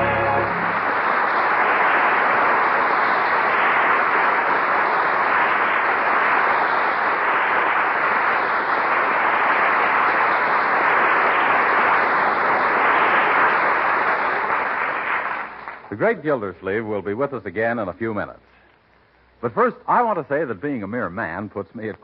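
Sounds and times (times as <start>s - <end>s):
audience applauding: 0.0s - 16.2s.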